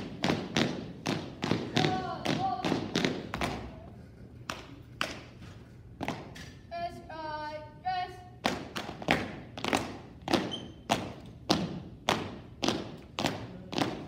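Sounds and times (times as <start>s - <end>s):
shoes stamping on tiled floor: 0.0s - 3.7s
person shouting drill call: 1.7s - 2.9s.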